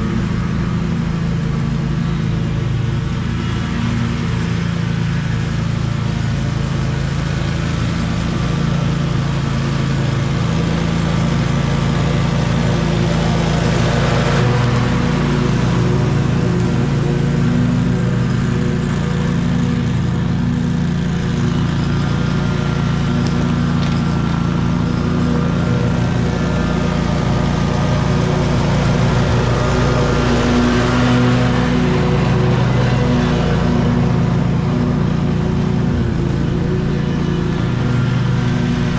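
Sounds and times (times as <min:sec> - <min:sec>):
lawn mower running: 0:00.0 - 0:38.9.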